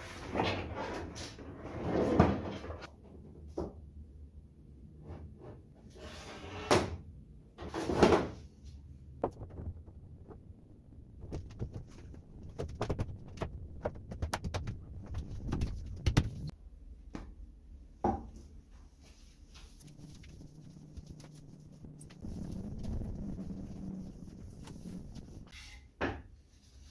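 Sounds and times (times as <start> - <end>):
plastic sheet crackling rustle: 19.4 - 25.5.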